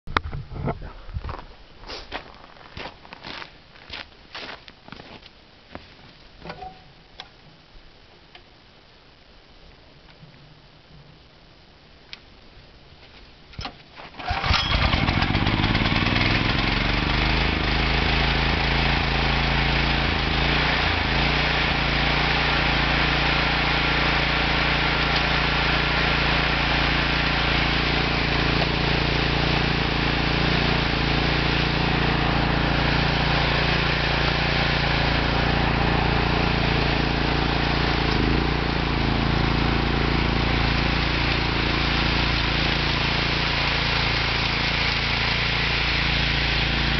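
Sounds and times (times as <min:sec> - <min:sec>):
snow thrower engine starting: 0:14.0 - 0:46.9
snow thrower throwing snow: 0:14.1 - 0:46.9.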